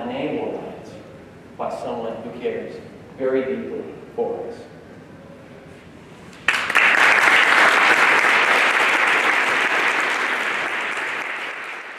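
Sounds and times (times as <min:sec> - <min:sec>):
audience applauding: 0:06.4 - 0:11.9.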